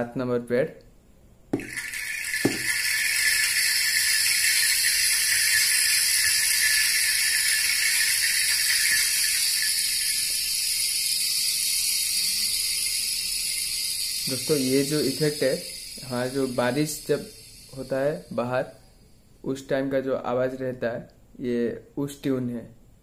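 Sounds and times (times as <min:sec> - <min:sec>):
rain sound effect hiss: 0:01.6 - 0:19.3.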